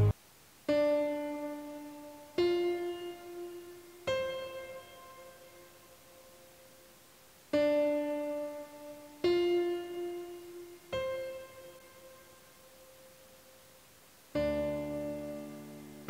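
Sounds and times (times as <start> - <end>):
slow piano chords: 0.7 - 16.0.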